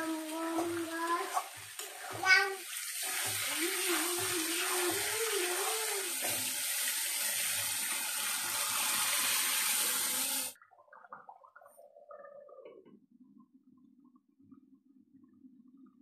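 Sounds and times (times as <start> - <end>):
water pouring into a wok: 0.0 - 10.6.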